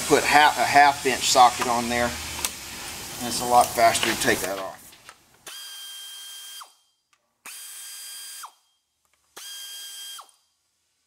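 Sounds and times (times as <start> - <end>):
air ratchet whining: 5.4 - 8.7, 9.3 - 10.4.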